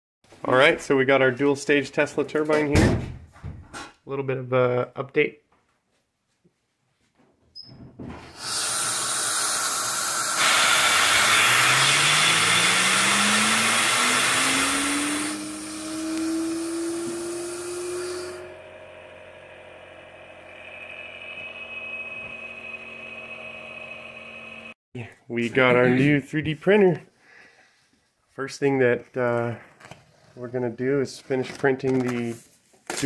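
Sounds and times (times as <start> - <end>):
loud air hiss: 8.3 - 18.4
turbine rotor whine: 10.3 - 24.8.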